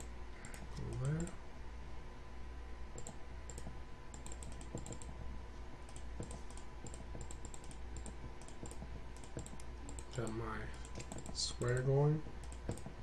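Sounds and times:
low steady hum: 0.0s - 13.0s
mouse and keyboard clicks: 3.0s - 5.1s, 5.9s - 12.9s.

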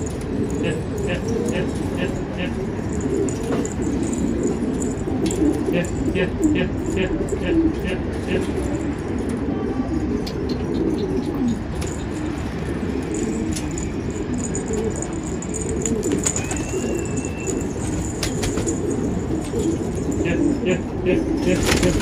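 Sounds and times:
pigeons cooing: 0.0s - 22.0s
wings clattering: 11.6s - 22.0s.

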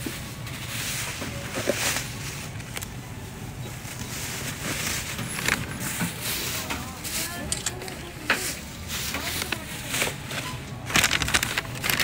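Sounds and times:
paper bag crinkling: 4.3s - 12.0s.

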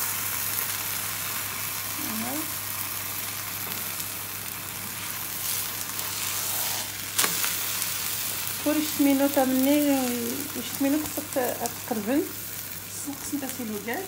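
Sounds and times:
flatbread sizzling in a pan: 0.0s - 14.0s
spatula scraping pan: 4.9s - 7.8s.

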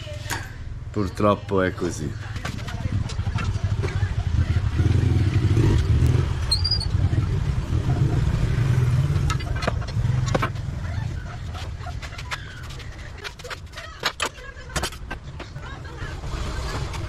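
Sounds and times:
passing vehicle rumble: 2.8s - 12.8s.

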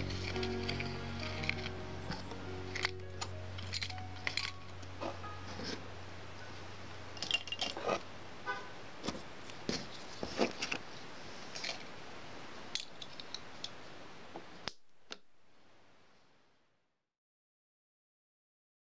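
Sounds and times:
small tools tapping and clinking: 0.0s - 3.0s, 3.6s - 4.6s, 7.2s - 8.0s.

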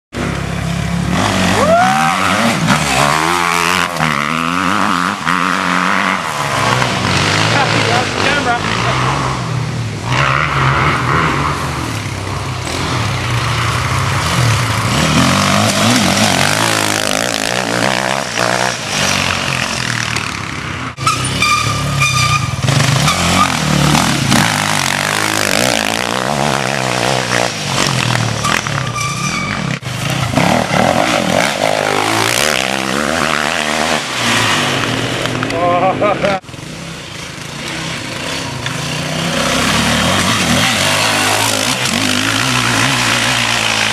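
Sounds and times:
dirt bike engines revving: 0.2s - 43.9s.

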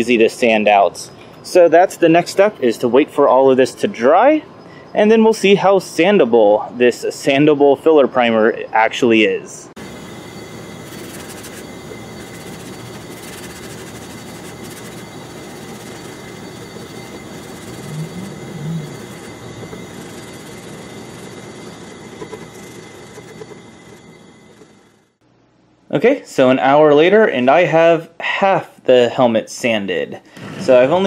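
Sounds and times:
sandpaper rubbing on plastic: 10.8s - 20.8s.

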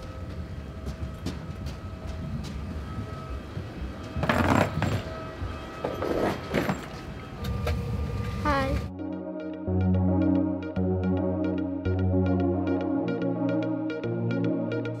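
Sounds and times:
suitcase wheels rumbling: 4.0s - 5.3s.

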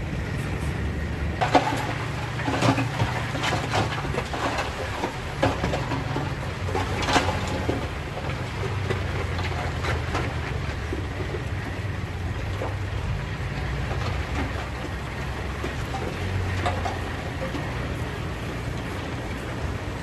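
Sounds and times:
diesel engine running: 0.0s - 20.0s
rocks clattering: 1.4s - 20.0s.

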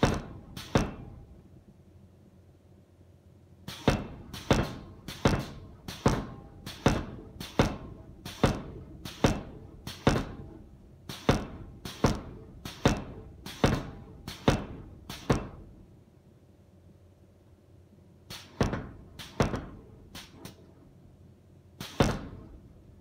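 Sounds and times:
power hammer striking hot metal: 0.0s - 1.3s, 3.7s - 15.7s, 21.8s - 22.6s.

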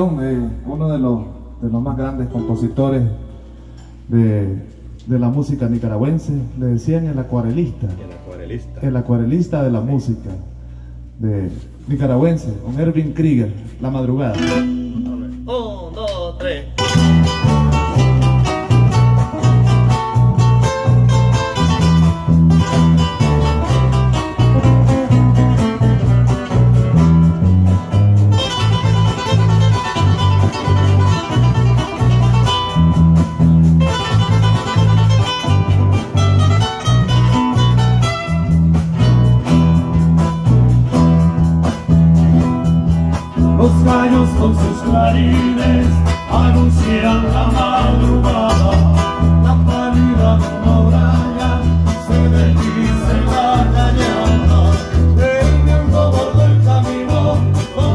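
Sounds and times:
instrumental folk band music: 14.3s - 16.1s, 16.7s - 57.9s.

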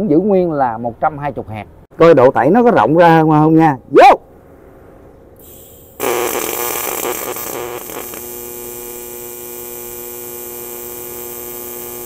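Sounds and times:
welding arc crackle and buzz: 5.4s - 12.0s.

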